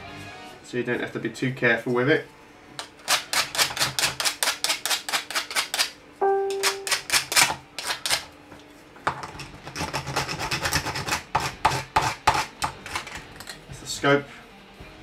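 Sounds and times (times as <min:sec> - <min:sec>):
rasp file scraping plastic: 0:03.1 - 0:05.9, 0:09.6 - 0:13.2.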